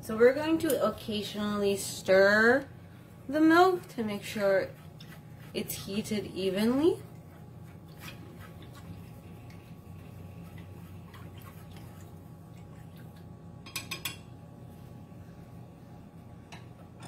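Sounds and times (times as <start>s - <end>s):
steady low hum: 0.0s - 17.0s
chopsticks scraping saucepan: 3.8s - 11.9s.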